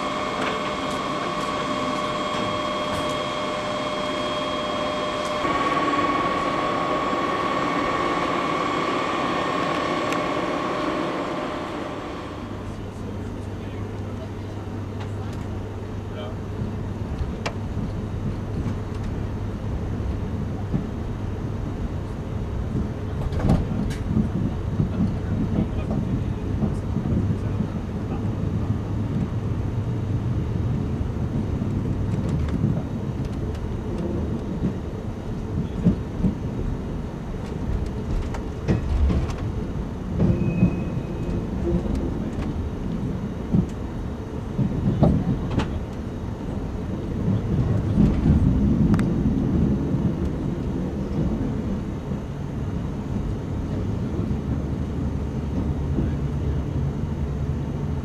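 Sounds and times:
train wheels rumbling: 0.0 - 58.0
clicks and knocks from track: 22.7 - 27.7, 37.4 - 39.6, 44.6 - 46.0.

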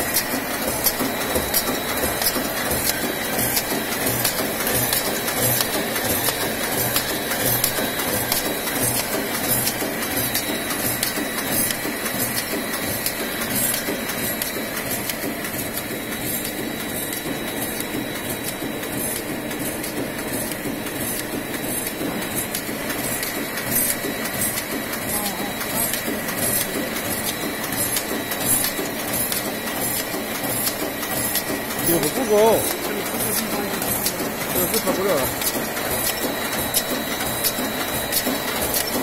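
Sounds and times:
mechanical clicks: 0.0 - 39.0
machine feeder clattering: 18.9 - 39.0.

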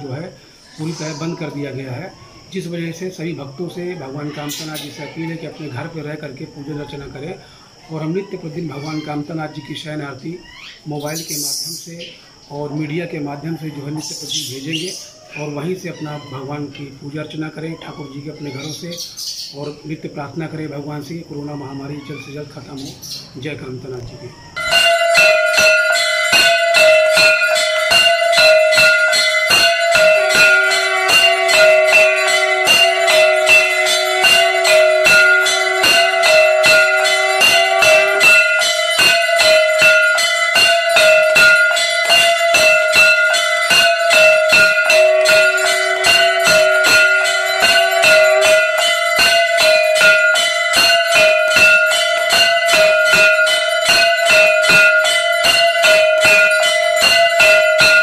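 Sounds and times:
bells and brass gong struck rapidly: 24.6 - 58.0.

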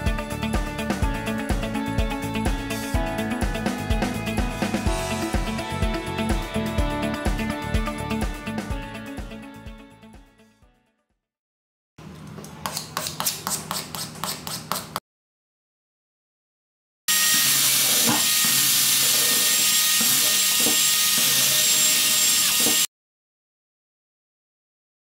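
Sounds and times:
cordless drill whining: 17.1 - 22.9.

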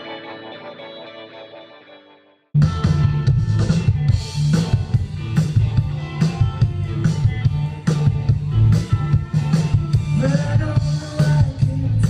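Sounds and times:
electric guitars: 0.0 - 12.0
rock band playing live: 0.0 - 12.0
drum kit hits: 2.6 - 11.8
heavy bass line: 2.6 - 12.0.

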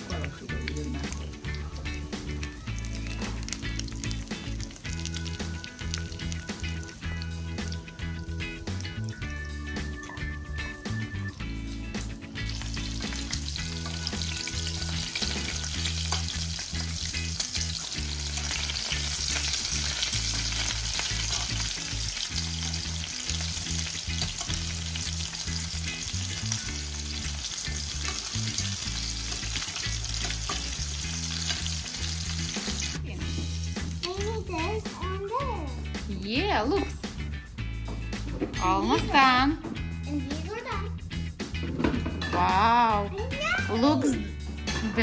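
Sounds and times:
cutlets sizzling in oil: 0.0 - 34.9.

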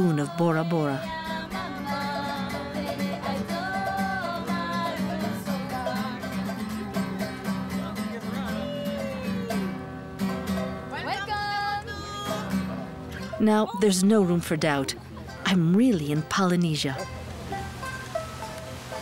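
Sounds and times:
voices singing: 0.0 - 9.8
acoustic guitar and ukulele strumming: 0.0 - 19.0.

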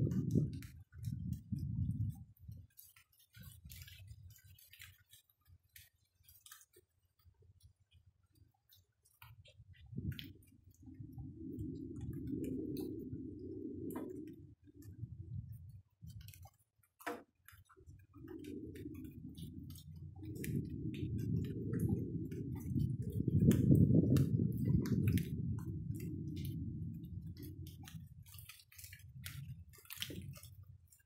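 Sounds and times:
rain dripping: 0.0 - 31.0
low rumble: 9.8 - 15.6, 18.2 - 28.3.

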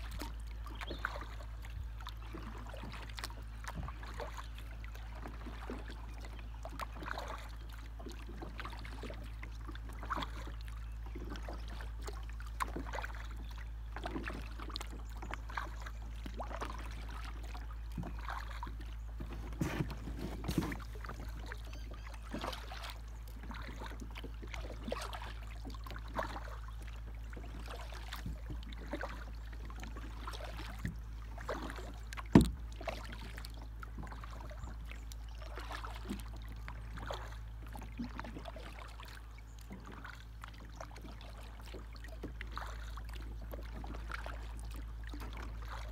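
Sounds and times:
paddle splashes and drips: 0.0 - 45.9.

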